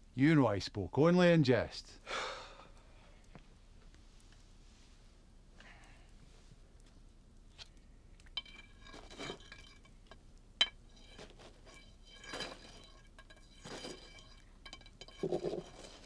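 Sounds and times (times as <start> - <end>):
tableware clinking: 8.3 - 16.0
soft scrapes of tableware: 8.4 - 16.0.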